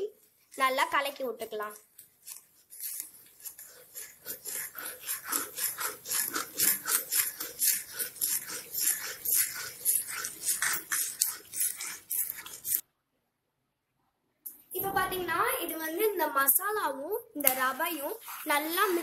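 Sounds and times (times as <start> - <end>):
metal spoon scraping a pan: 1.6 - 12.8, 17.4 - 19.0.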